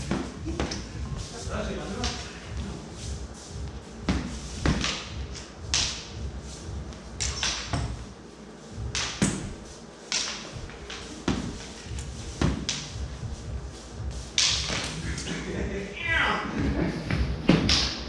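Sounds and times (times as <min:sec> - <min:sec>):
training swords clacking: 0:07.2 - 0:08.0, 0:08.9 - 0:13.0, 0:14.3 - 0:15.3.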